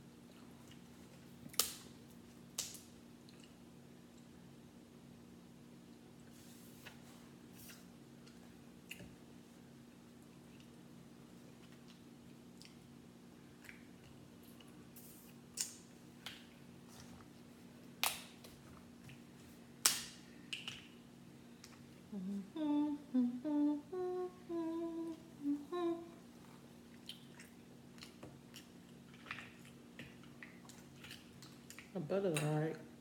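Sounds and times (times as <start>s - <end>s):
woman humming: 22.1s - 26.3s.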